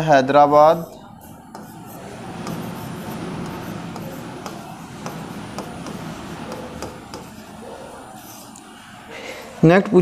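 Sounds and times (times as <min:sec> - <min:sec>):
marker scraping on board: 0:00.4 - 0:08.6.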